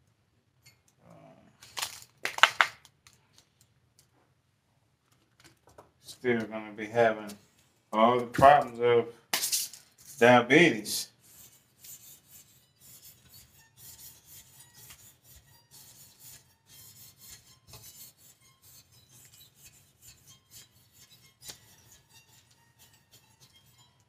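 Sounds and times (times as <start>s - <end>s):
hand scraping and rubbing: 9.7s - 24.0s.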